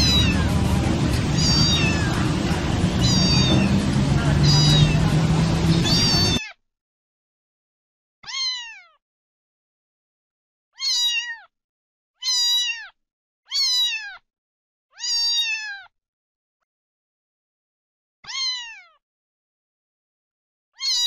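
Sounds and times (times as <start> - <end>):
cat meowing: 0.0 - 6.5, 8.2 - 9.0, 10.8 - 11.5, 12.2 - 14.2, 15.0 - 15.9, 18.2 - 19.0, 20.8 - 21.0.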